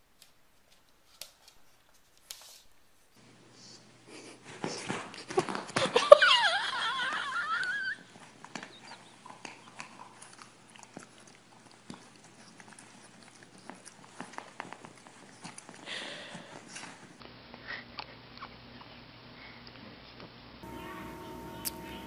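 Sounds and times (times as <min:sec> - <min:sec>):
dog whining: 0:07.1 - 0:10.8.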